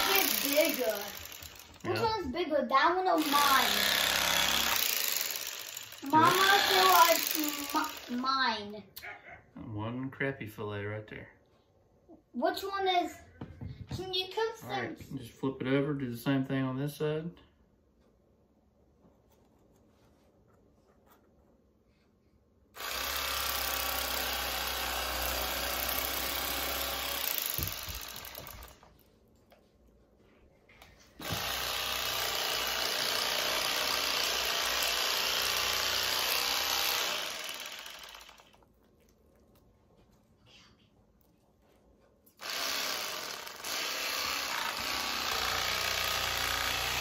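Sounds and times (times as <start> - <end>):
electric fillet knife running: 0.0 - 1.9, 3.2 - 8.2, 22.8 - 28.8, 31.2 - 38.6, 42.4 - 47.0.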